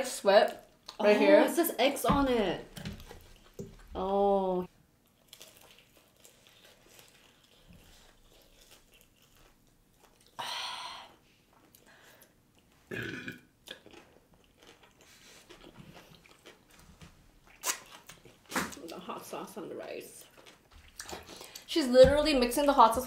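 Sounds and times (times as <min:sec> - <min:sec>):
chewing and mouth sounds: 0:05.0 - 0:10.4, 0:11.5 - 0:19.1, 0:20.0 - 0:21.7.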